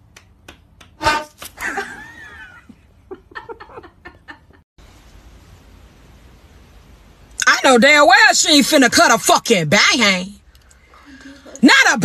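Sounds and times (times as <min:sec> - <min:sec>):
person laughing: 0:01.6 - 0:04.6.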